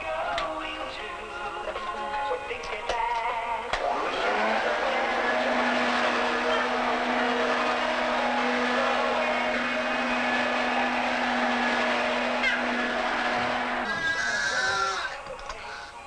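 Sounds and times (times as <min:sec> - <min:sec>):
vacuum cleaner motor humming: 0:03.8 - 0:15.1.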